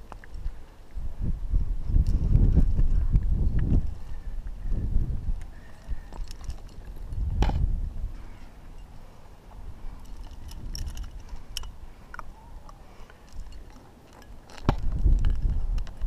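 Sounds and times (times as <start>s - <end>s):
metal climbing gear clinking: 5.6s - 7.6s, 8.5s - 9.2s, 9.8s - 16.0s.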